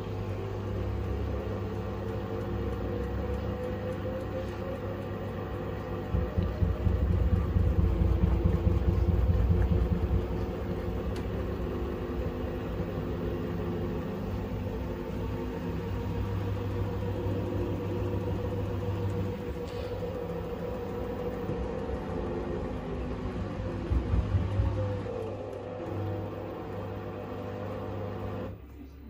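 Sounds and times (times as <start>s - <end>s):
washing machine spinning: 0.0s - 29.0s
low rumble of unbalanced drum: 5.7s - 13.5s, 14.1s - 25.1s.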